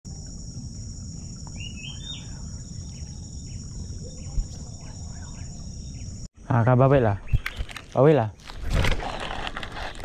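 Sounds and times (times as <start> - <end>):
insect chorus drone: 0.1 - 10.0.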